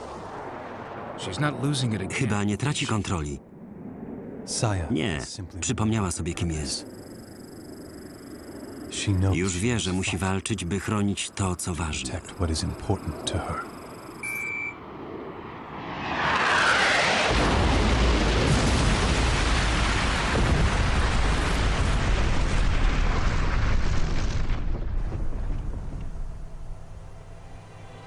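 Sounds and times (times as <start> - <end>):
electronic lock-on beep: 13.6 - 14.8
huge explosion rumbling: 17.1 - 27.1.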